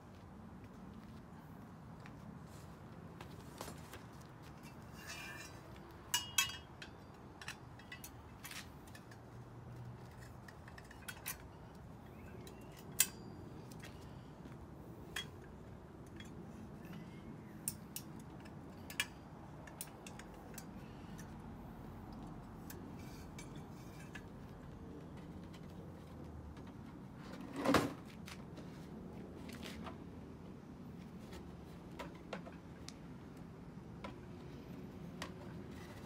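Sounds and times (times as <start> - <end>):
metal tubes clinking: 4.5 - 14.0, 15.0 - 21.4, 22.6 - 24.6.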